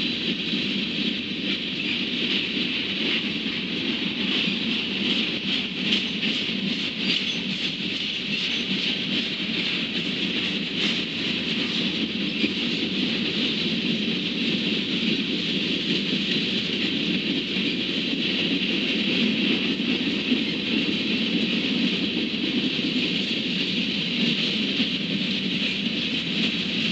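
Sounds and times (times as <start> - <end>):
train wheels running on rails: 0.0 - 26.9.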